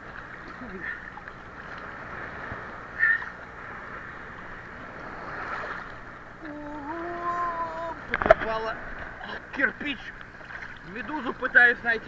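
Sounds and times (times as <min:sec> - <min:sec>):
sea water sloshing and lapping: 0:00.0 - 0:12.0
person humming: 0:06.4 - 0:08.0.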